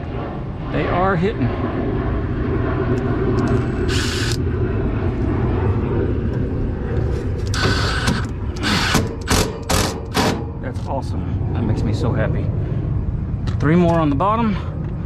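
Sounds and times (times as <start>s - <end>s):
steady low rumble: 0.0s - 15.0s
impact driver driving screws: 7.5s - 10.4s.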